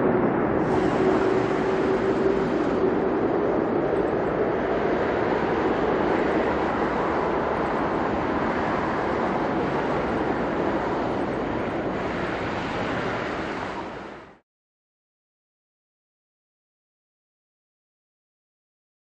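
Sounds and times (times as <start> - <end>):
jet engine rush: 0.0 - 14.4.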